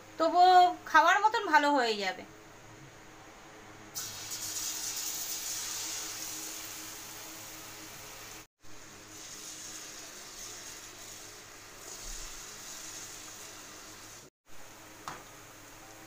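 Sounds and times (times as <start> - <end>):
batter sizzling in hot oil: 4.0 - 14.3.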